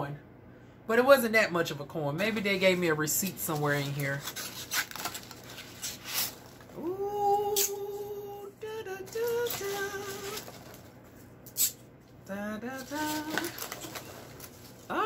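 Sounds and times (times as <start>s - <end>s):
woman humming: 6.8s - 10.4s.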